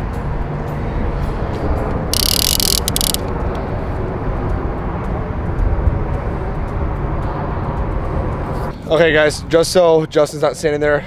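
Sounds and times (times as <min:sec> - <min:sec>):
reel clicks: 0:02.1 - 0:03.4
fishing reel drag hissing: 0:02.2 - 0:03.2.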